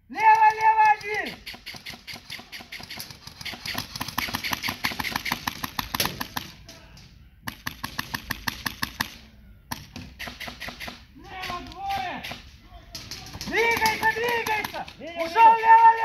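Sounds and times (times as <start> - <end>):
airsoft rifle rapid firing: 0.5 - 6.6, 7.5 - 12.4, 13.5 - 14.8.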